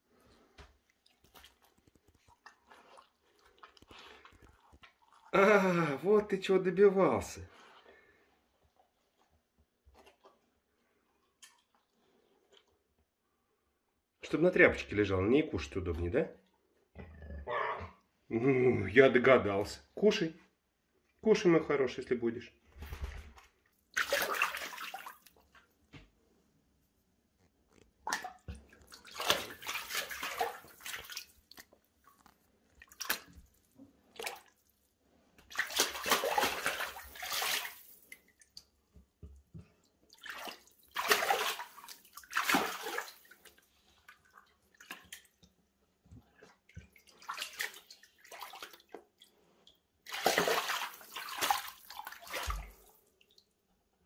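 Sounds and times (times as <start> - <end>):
animal splashing in shallow water: 0.9 - 5.4, 23.9 - 25.5, 28.0 - 34.7, 35.4 - 38.7, 40.1 - 45.4, 46.4 - 49.3, 50.0 - 53.4.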